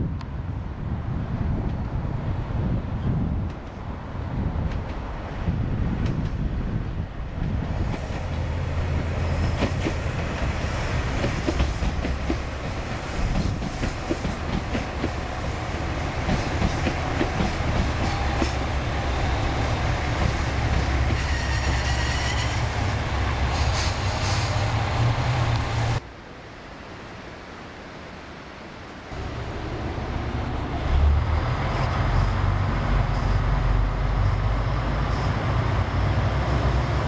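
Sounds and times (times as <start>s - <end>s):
diesel train engine rumble: 0.2s - 26.0s, 29.1s - 37.0s
faint high wheel squeal: 21.2s - 22.8s.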